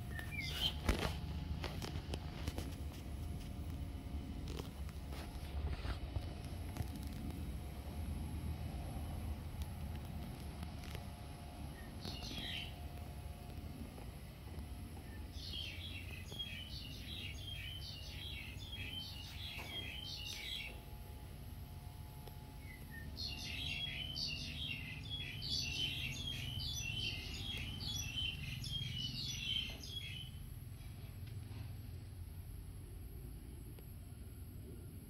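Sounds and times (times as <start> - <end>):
songbird chirping: 0.0 - 1.1, 11.6 - 13.1, 15.0 - 20.9, 22.6 - 30.4
low background rumble: 0.0 - 35.0.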